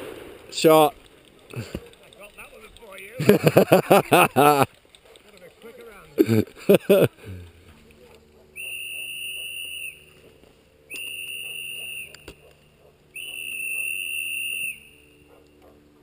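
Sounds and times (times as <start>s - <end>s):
whistle blasts: 8.5s - 10.2s, 10.9s - 12.4s, 13.1s - 15.3s.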